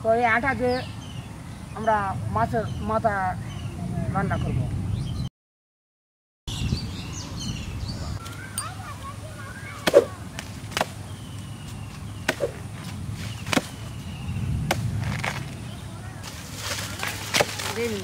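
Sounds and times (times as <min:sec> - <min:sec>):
blade chopping into plant trunk: 0:13.4 - 0:13.8, 0:16.6 - 0:18.0.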